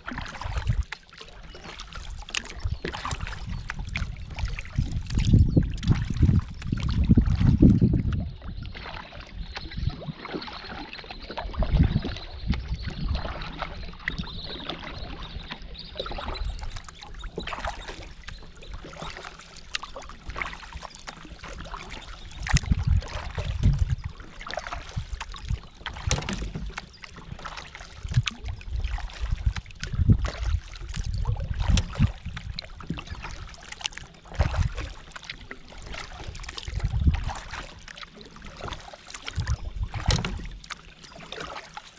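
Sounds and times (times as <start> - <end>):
paddle stroking through water: 0.0 - 41.9
water dripping off paddle: 0.0 - 41.9.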